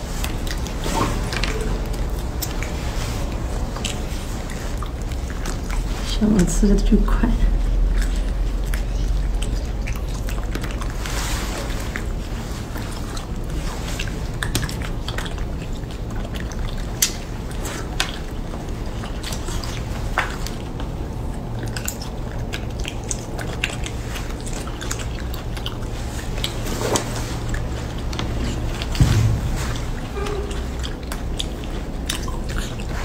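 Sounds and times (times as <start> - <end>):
wet chewing and lip-smacking: 0.0 - 33.0
low hum: 28.4 - 31.8
soft thump: 29.0 - 30.3.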